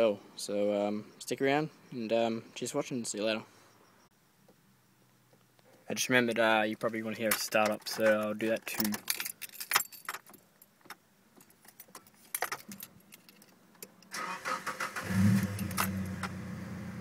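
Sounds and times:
keys rattling in ignition: 0:06.3 - 0:16.2
car engine cranking and idling: 0:14.0 - 0:17.0.

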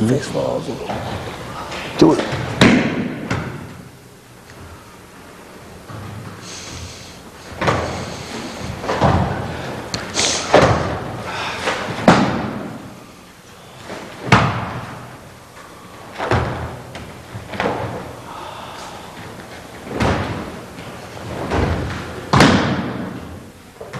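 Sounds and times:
bodies slamming on mat: 0:02.0 - 0:03.8, 0:08.7 - 0:13.0, 0:13.9 - 0:15.2, 0:16.1 - 0:18.1, 0:19.8 - 0:23.5.

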